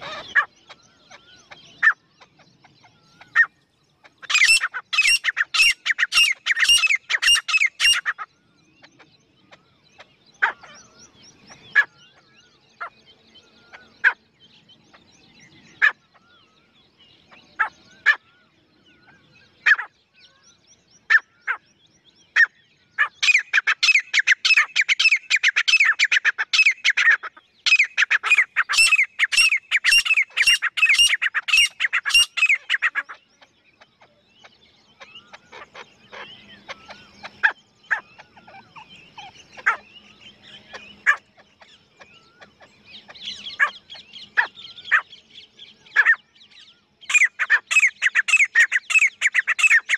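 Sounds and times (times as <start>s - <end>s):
francolin calling: 0.0s - 8.8s, 22.4s - 34.1s, 34.9s - 49.9s.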